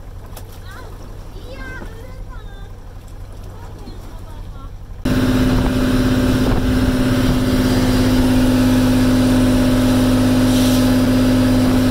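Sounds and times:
boat engine humming: 0:00.0 - 0:11.9.

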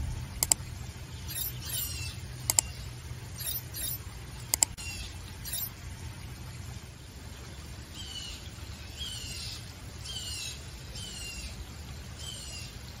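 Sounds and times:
steady low rumble: 0:00.0 - 0:07.3
bird chirping: 0:00.4 - 0:05.7.

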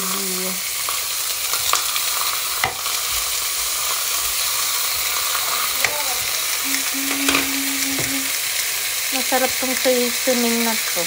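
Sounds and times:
pork sizzling in a frying pan: 0:00.0 - 0:11.0
tongs clicking: 0:05.2 - 0:08.3.

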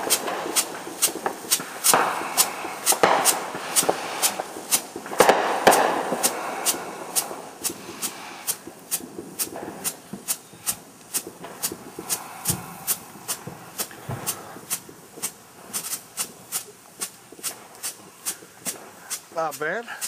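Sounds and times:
firework hiss: 0:00.0 - 0:20.0
strobe firework popping: 0:00.0 - 0:20.0.

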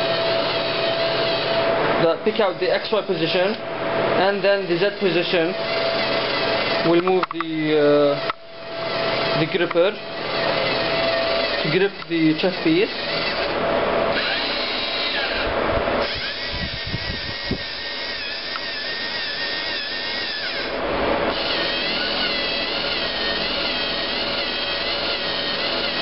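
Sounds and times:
servo motors whirring: 0:08.9 - 0:26.0.

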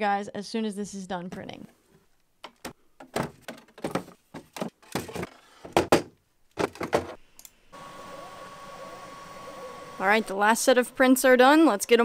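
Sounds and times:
steady machine hum: 0:07.6 - 0:12.0.

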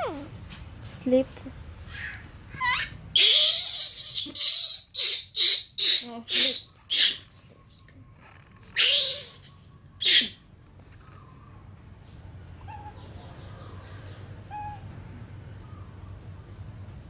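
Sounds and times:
baby macaques cooing: 0:01.9 - 0:07.3, 0:08.2 - 0:10.4, 0:12.6 - 0:13.8, 0:14.5 - 0:14.8.

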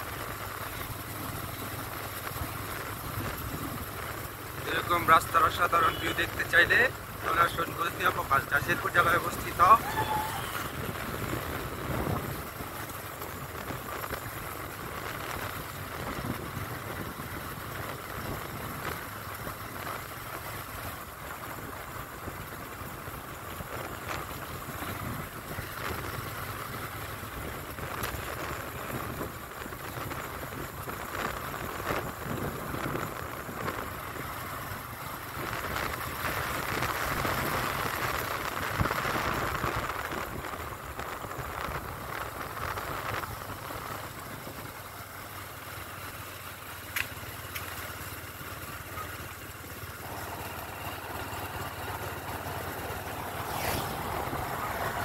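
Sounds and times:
road noise: 0:00.0 - 0:55.0
wind on microphone: 0:09.8 - 0:12.8.

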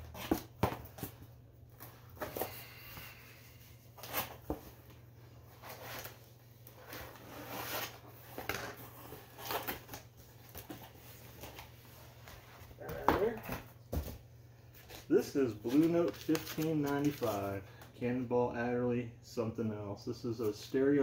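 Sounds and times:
cardboard rustling and scraping: 0:03.9 - 0:14.2.

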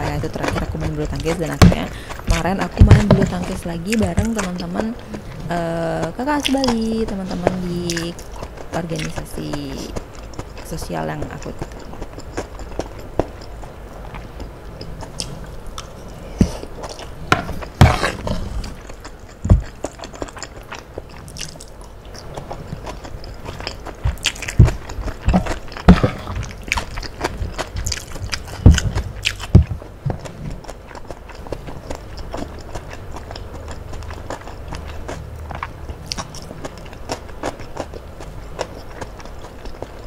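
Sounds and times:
chewing and mouth smacks: 0:00.0 - 0:40.0.

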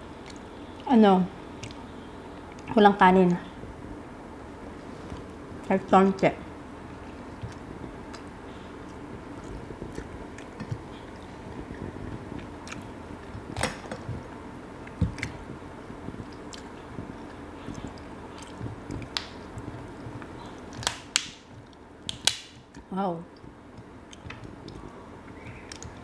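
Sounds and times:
chewing: 0:06.9 - 0:14.2, 0:14.8 - 0:20.8
shell cracking: 0:20.7 - 0:21.4, 0:22.1 - 0:22.6.

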